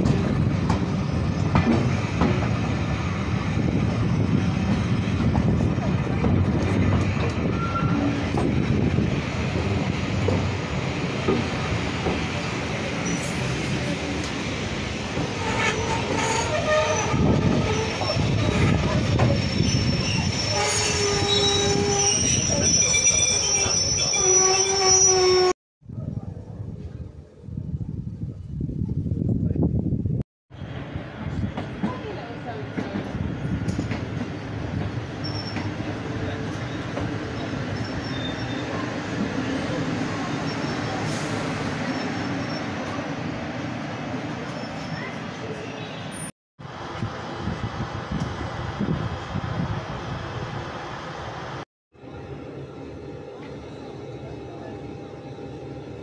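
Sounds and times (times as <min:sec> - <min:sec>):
train rumble: 0:00.0 - 0:56.0
train wheels squealing on rails: 0:06.8 - 0:08.6, 0:11.7 - 0:14.0, 0:15.2 - 0:25.5, 0:32.8 - 0:43.1, 0:44.3 - 0:46.3.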